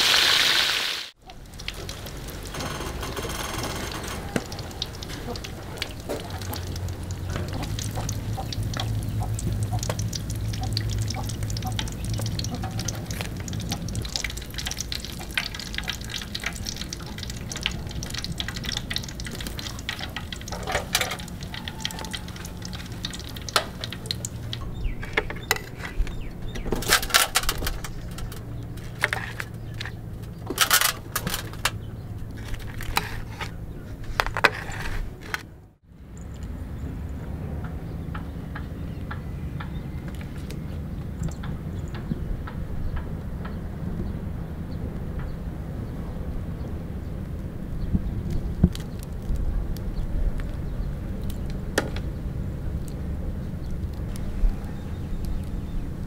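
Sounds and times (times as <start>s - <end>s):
oil crackling in a wok: 0.0s - 33.6s, 47.2s - 56.0s.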